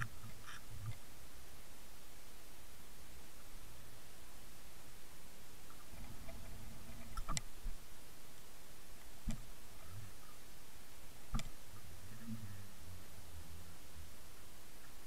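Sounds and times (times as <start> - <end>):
sharp clicks: 7.0 - 7.5, 11.3 - 11.6
muffled underwater rumble: 11.7 - 14.2.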